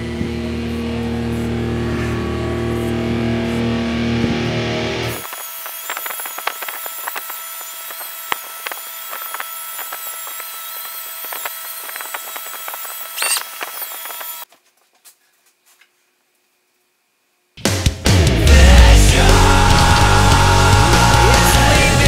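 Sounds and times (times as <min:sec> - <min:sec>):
electric polisher motor whine: 0:00.0 - 0:14.5.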